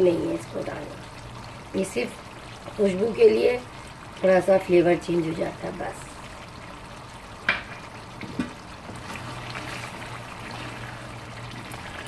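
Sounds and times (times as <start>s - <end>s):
food sizzling in a frying pan: 0.0s - 12.0s
wooden spoon stirring a pan: 7.6s - 12.0s.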